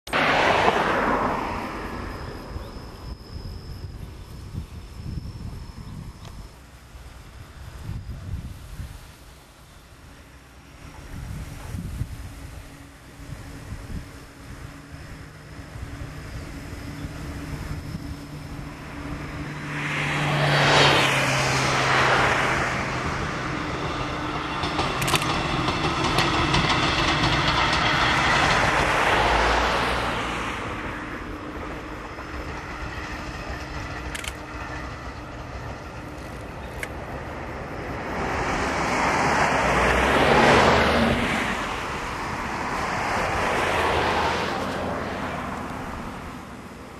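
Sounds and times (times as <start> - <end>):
vehicles passing by: 0.1 - 46.9
sharp clicks of passing train: 10.4 - 46.9.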